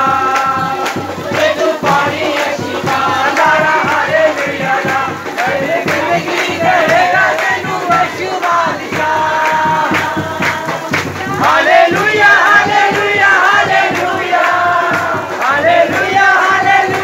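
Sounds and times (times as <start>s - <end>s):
congregation singing and crying out: 0.0s - 17.0s.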